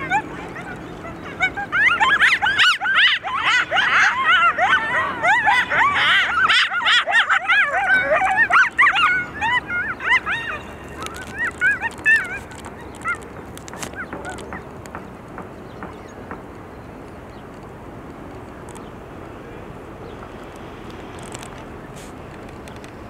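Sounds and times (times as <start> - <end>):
coyotes yipping and howling: 0.0 - 15.1.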